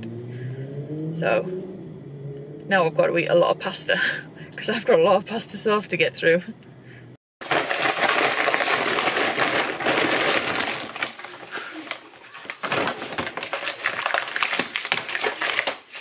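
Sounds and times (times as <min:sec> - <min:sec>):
plastic bags rustling: 0:07.4 - 0:16.0.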